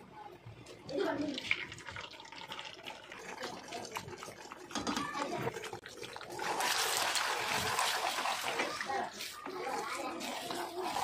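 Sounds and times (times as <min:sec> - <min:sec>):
eggs sizzling in oil: 0:00.6 - 0:11.0.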